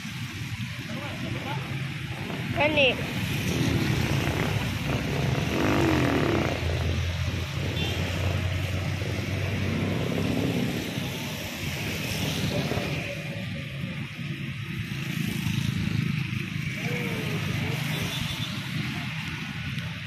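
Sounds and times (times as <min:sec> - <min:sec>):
wind on microphone: 0:00.1 - 0:15.1
rain on microphone: 0:06.4 - 0:20.0.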